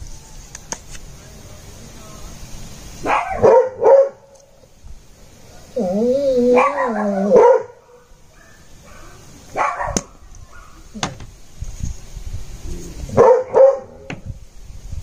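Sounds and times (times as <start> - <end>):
dog barking: 3.0 - 4.3, 6.5 - 10.8, 13.2 - 14.1
dog whining: 5.8 - 7.5.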